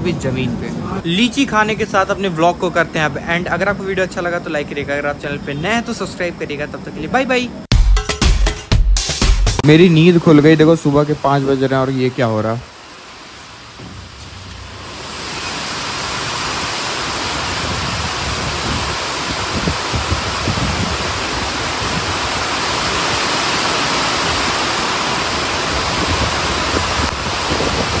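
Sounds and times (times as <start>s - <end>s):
heavy rain pouring: 9.6s - 28.0s.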